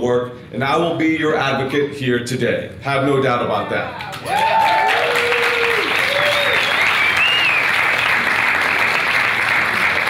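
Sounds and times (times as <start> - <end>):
audience applauding: 4.0 - 10.0
audience cheering: 4.0 - 10.0
person whistling: 6.6 - 7.6.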